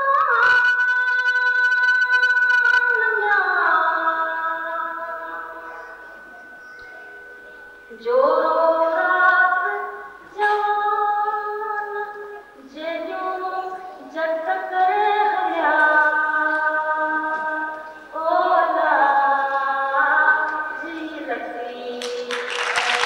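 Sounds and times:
woman singing folk song: 0:07.9 - 0:22.3.

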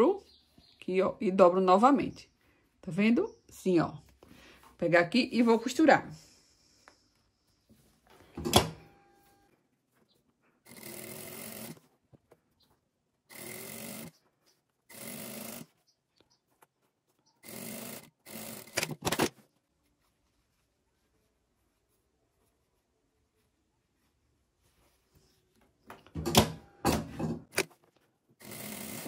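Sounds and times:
sewing machine stitching: 0:10.7 - 0:11.9, 0:13.3 - 0:14.2, 0:14.9 - 0:15.7, 0:17.4 - 0:19.3, 0:28.4 - 0:29.0.

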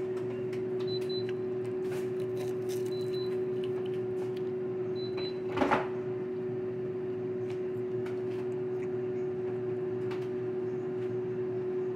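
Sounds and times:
steady hum: 0:00.0 - 0:11.9
food handling noise: 0:00.2 - 0:04.6.

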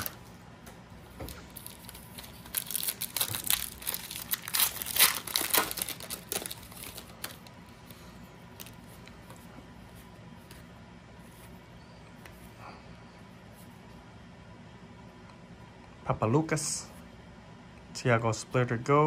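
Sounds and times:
foil wrapper tearing and crinkling: 0:01.4 - 0:07.5.

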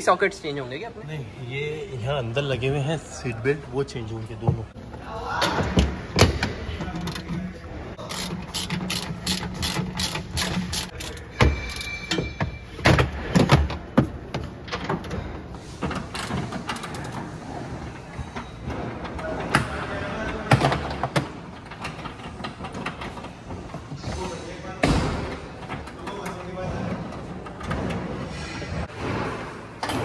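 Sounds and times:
tools and trim fittings clicking: 0:08.0 - 0:12.3.

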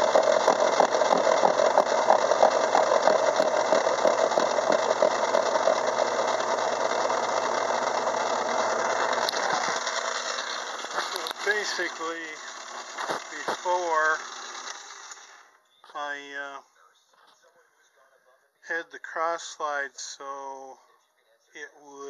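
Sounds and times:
gear cutter rattle: 0:00.0 - 0:15.3
lathe humming: 0:00.0 - 0:15.4.

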